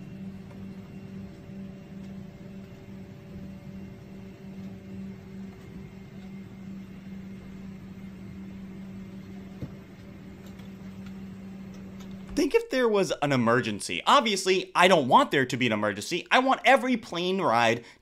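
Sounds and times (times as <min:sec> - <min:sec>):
airliner cabin drone: 0:00.0 - 0:13.5
ventilation hiss: 0:00.0 - 0:18.0.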